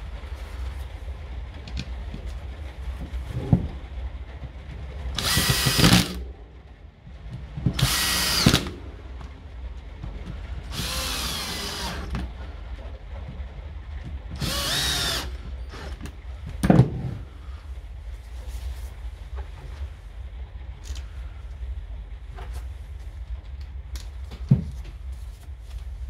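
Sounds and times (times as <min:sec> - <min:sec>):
cordless drill motor whine: 0:05.2 - 0:06.2, 0:07.8 - 0:08.7, 0:10.7 - 0:12.1, 0:14.4 - 0:16.0.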